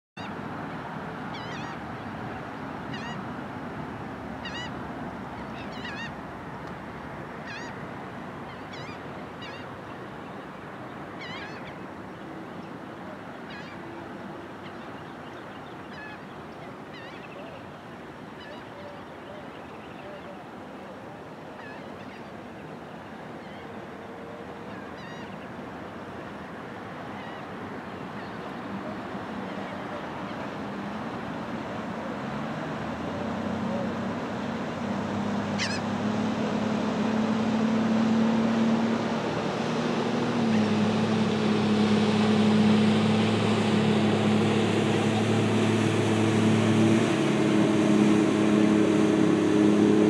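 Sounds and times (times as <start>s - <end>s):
small waves rushing: 0.2s - 50.0s
birds chirping: 7.4s - 20.5s.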